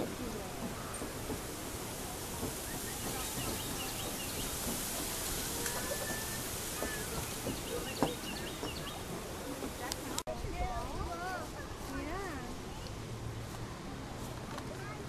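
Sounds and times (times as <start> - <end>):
background hiss: 0.0 - 15.0
small birds chirping faintly: 0.6 - 10.2.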